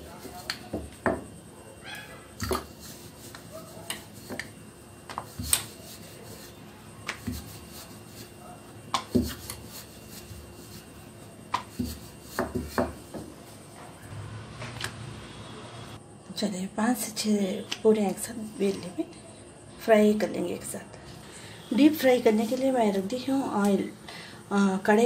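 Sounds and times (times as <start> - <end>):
rolling pin knocking and rubbing: 2.4 - 13.4.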